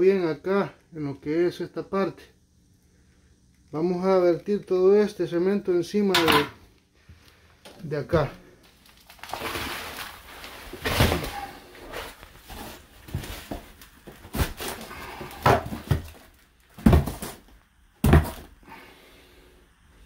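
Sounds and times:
mortar sliding from tub: 0:09.2 - 0:13.4.

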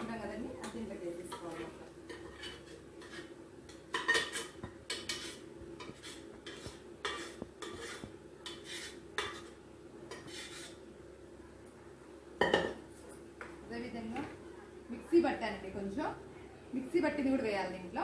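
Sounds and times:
metal spoon scraping metal pot: 0:02.1 - 0:03.3, 0:03.9 - 0:10.8.

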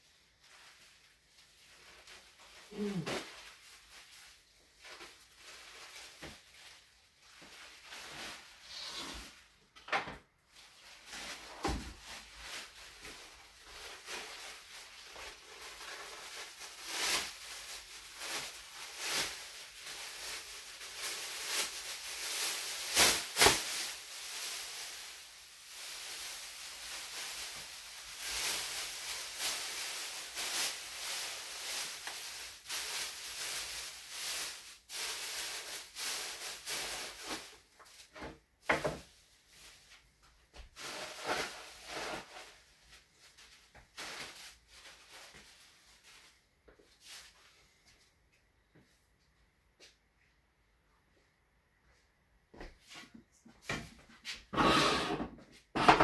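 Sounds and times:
plastic sheeting crinkling: 0:00.0 - 0:09.8, 0:10.4 - 0:48.9.

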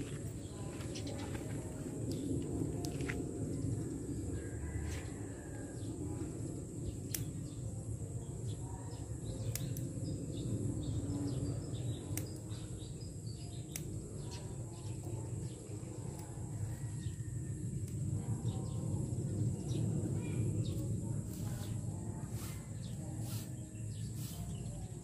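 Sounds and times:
birds chirping: 0:00.0 - 0:04.8, 0:18.3 - 0:25.0
low rumble: 0:00.0 - 0:12.1.

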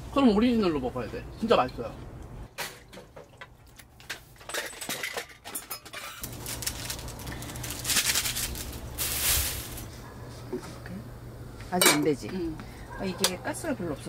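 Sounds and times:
metal cookware clinking: 0:04.4 - 0:06.2, 0:11.8 - 0:12.1
packet crinkling and tearing: 0:06.2 - 0:09.9.

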